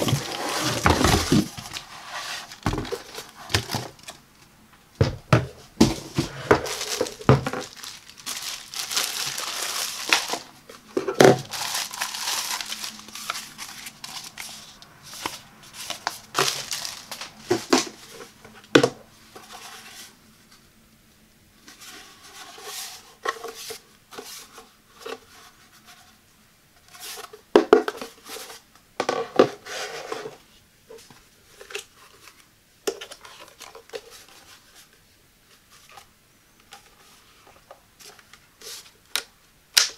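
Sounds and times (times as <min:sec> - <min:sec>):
plastic film crinkling and tearing: 0:06.5 - 0:10.6, 0:11.2 - 0:18.0.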